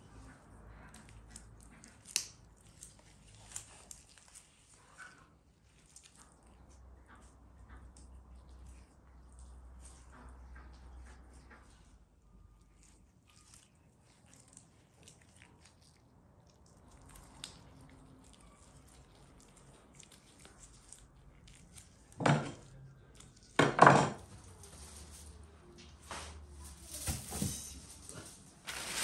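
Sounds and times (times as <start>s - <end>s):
gloved hands squishing meat: 0.3s - 23.6s
baking paper crackling: 24.3s - 29.0s.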